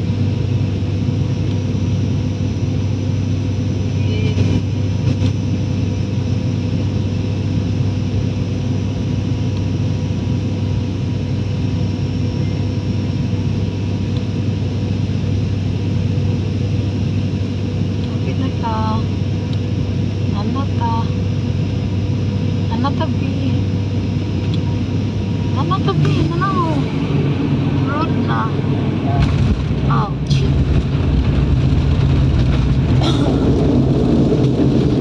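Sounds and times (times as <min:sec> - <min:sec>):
airliner cabin noise: 0:00.0 - 0:35.0.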